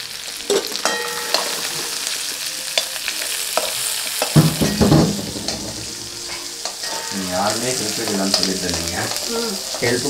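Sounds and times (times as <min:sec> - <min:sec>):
food sizzling in hot oil: 0:00.0 - 0:10.0
steel vessels clinking: 0:00.5 - 0:02.0, 0:03.6 - 0:10.0
spatula scraping in a pan: 0:06.0 - 0:10.0.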